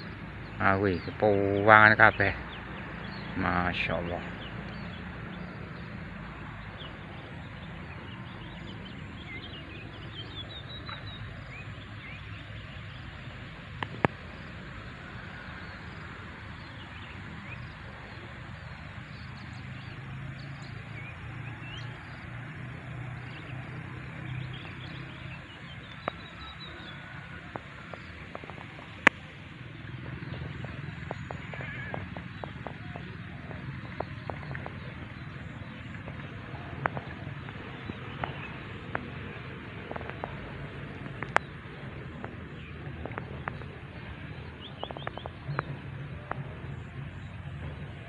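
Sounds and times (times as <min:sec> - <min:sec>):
outdoor background hiss: 0:00.0 - 0:48.0
small birds chirping: 0:00.0 - 0:48.0.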